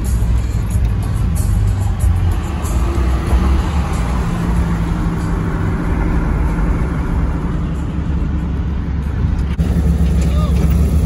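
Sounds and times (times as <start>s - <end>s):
road noise: 0.0s - 11.0s
truck engine rumble: 0.0s - 11.0s.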